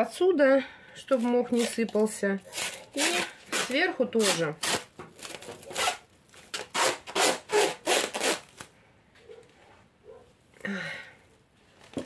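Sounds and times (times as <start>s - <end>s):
stretch film pulled off roll: 1.1s - 8.8s
soft plastic rustle: 11.5s - 12.0s.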